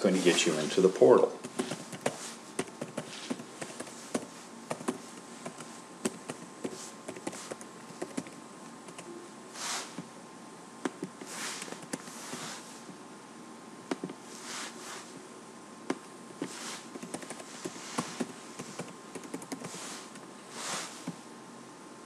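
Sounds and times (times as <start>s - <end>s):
soft hisses: 0.0s - 5.9s, 6.6s - 7.6s, 9.5s - 10.1s, 11.1s - 13.0s, 14.0s - 15.2s, 16.4s - 19.0s, 19.6s - 21.3s.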